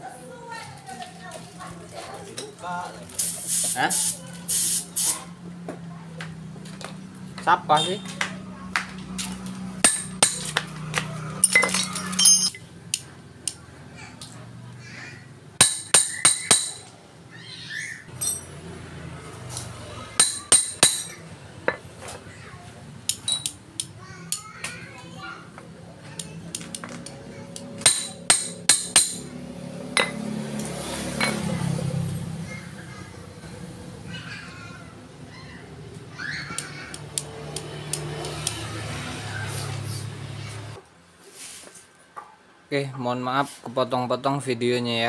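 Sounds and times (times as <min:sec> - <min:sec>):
hammer clinking on metal: 0:09.8 - 0:10.6, 0:11.4 - 0:12.6, 0:15.6 - 0:16.9, 0:18.1 - 0:18.6, 0:20.2 - 0:21.2, 0:27.8 - 0:29.2.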